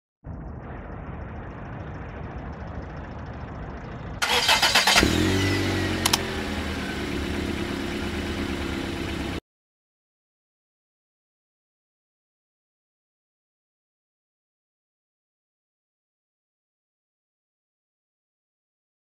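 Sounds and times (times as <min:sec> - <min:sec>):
low steady rumble: 0:00.2 - 0:09.4
car engine starting and idling: 0:00.3 - 0:09.4
sharp click: 0:06.0 - 0:06.2.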